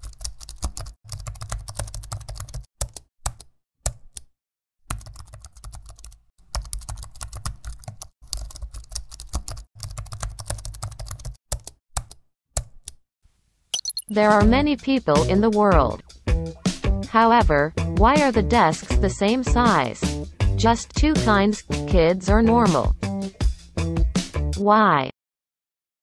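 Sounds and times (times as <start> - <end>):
fast typing on keyboard: 0.0 - 4.3, 4.9 - 12.2.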